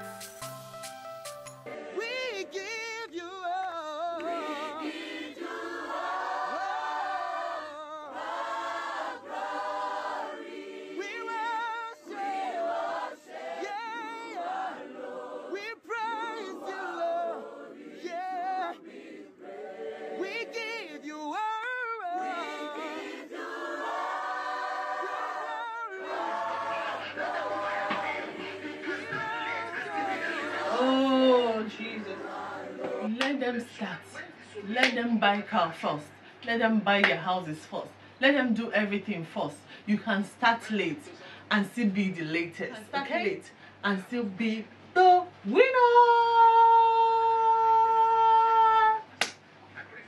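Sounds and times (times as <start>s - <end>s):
choir singing: 1.6s - 33.3s.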